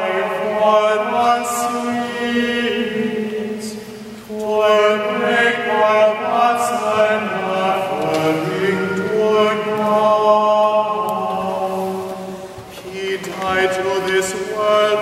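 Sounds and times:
man chanting unaccompanied: 0:00.0 - 0:12.2, 0:12.8 - 0:15.0.

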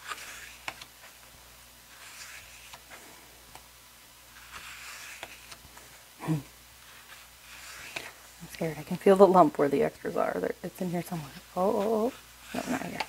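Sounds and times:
paper pages being turned: 0:00.0 - 0:03.7, 0:04.3 - 0:06.0, 0:06.8 - 0:09.0, 0:11.1 - 0:13.0.

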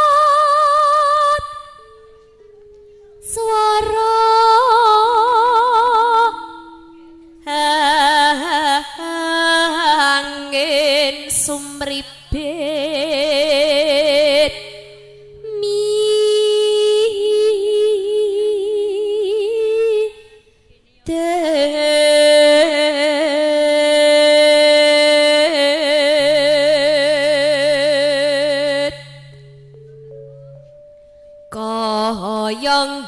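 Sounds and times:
woman singing with vibrato: 0:00.0 - 0:02.2, 0:03.1 - 0:29.9, 0:31.5 - 0:33.0
low steady note: 0:01.3 - 0:18.7, 0:25.4 - 0:33.0.

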